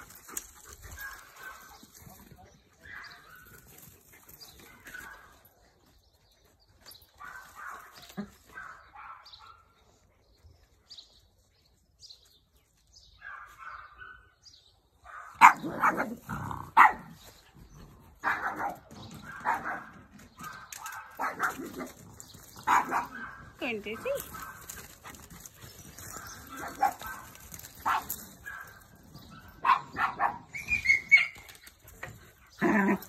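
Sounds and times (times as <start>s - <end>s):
dogs barking: 0.8s - 1.9s, 7.2s - 9.7s, 13.2s - 14.4s, 15.0s - 17.2s, 18.1s - 31.4s.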